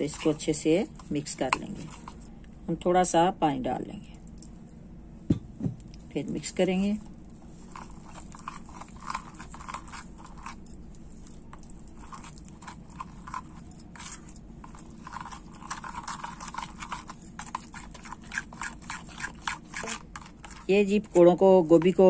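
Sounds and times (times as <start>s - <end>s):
utensil stirring batter in bowl: 0.0s - 2.2s, 7.1s - 22.0s.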